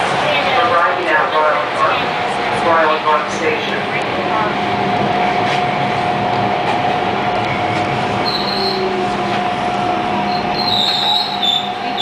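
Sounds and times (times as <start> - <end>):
steady whine: 0.0 - 12.0
subway car rumbling on rails: 0.0 - 12.0
high wheel squeal: 8.2 - 9.0, 10.3 - 12.0.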